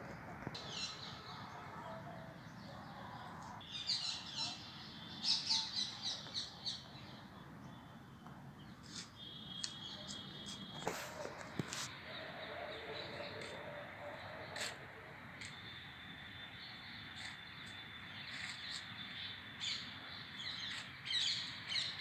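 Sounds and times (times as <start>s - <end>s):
small birds chirping: 15.4s - 22.0s.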